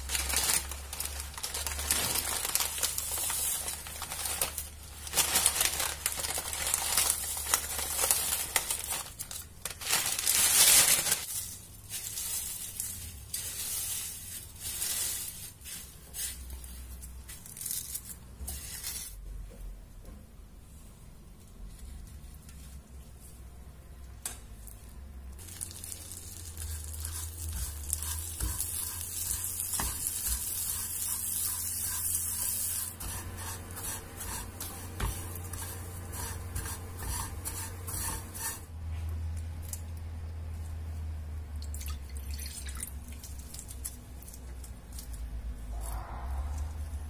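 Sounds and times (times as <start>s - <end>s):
butter sizzling in a frying pan: 25.4s - 33.0s
spatula scraping a pan: 26.4s - 38.7s
steady low hum: 44.0s - 47.0s.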